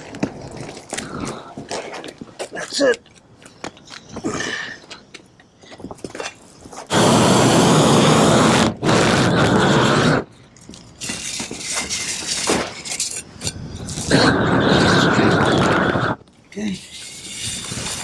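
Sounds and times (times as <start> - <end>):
roofing torch roaring: 6.9 - 10.4, 13.5 - 16.2
trowel scraping membrane: 11.0 - 14.3, 16.7 - 18.0.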